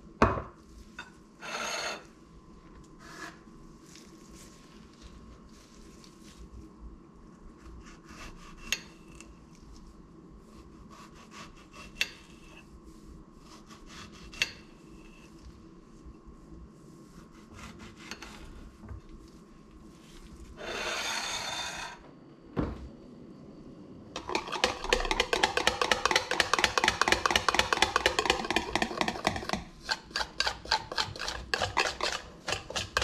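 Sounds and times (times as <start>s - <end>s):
knife scraping a plate: 1.0s - 2.1s, 17.3s - 18.6s, 20.6s - 22.0s, 27.7s - 33.0s.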